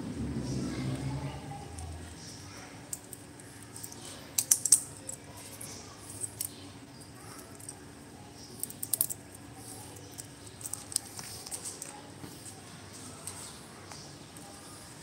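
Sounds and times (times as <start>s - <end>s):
bird claws clicking on marble floor: 2.9s - 6.6s, 8.5s - 12.0s.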